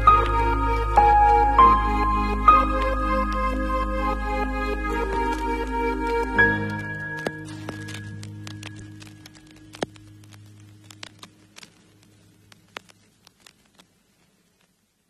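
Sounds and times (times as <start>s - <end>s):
soft background music: 0.0s - 12.7s
faint clicks and taps: 5.1s - 14.8s.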